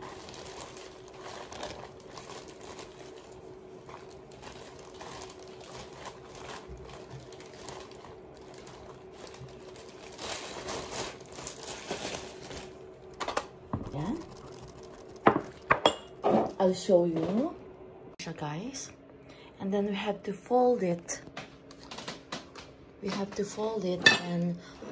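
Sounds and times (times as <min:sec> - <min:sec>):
plastic gloves crinkling: 0:00.0 - 0:16.2
faint steady hum: 0:00.0 - 0:24.9.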